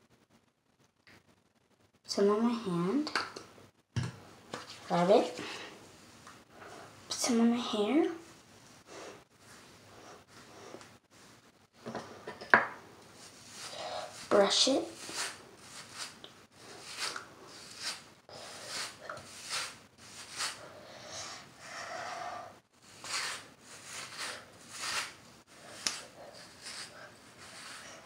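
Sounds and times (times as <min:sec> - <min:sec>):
hairbrush swishing through hair: 0:13.2 - 0:20.8, 0:22.8 - 0:28.0.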